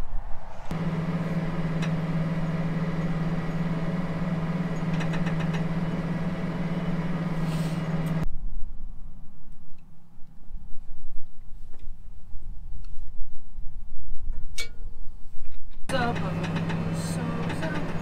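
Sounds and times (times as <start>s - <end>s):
wind buffeting microphone: 0.0s - 3.7s
tractor engine droning: 0.0s - 8.2s, 15.9s - 18.0s.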